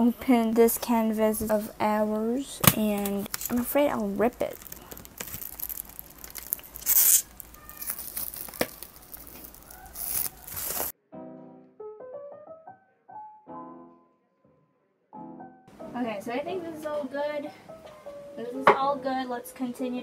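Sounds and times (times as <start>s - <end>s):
plastic wrapping tearing and crinkling: 2.6s - 10.9s
loud ripping bursts: 3.3s - 10.9s
soft piano background music: 7.9s - 20.0s.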